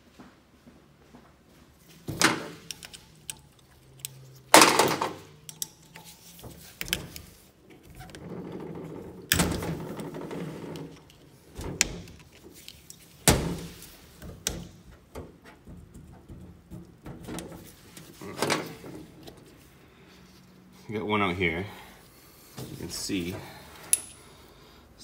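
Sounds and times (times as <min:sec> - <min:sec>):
metal tool clicking and scraping: 0:02.6 - 0:04.6, 0:05.2 - 0:07.3.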